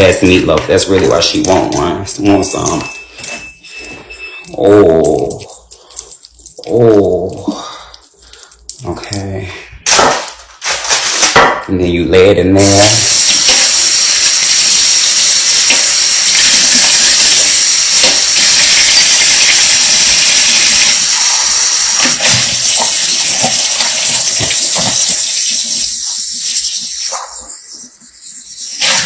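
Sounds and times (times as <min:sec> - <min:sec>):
tap water running into sink: 0:12.8 - 0:27.0.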